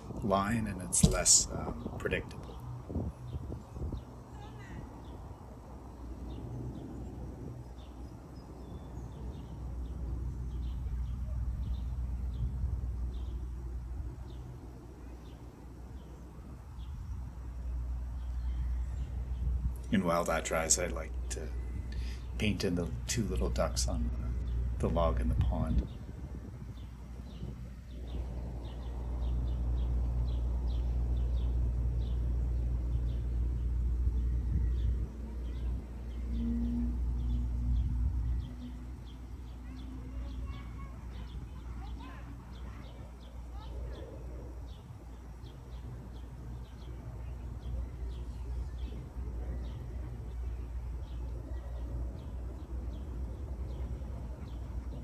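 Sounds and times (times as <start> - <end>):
low outdoor rumble: 0.0 - 55.0
low rumble: 21.1 - 39.5
small bird chirping: 25.7 - 55.0.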